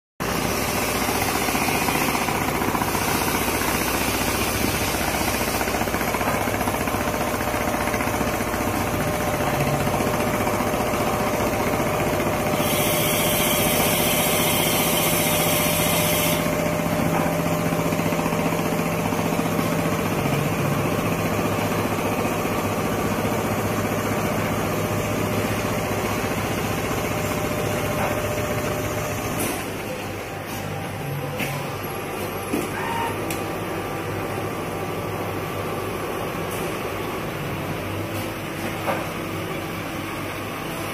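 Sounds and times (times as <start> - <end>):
machine hum: 0.2 - 40.9
sewing machine chattering: 0.7 - 12.8
hiss: 12.6 - 16.4.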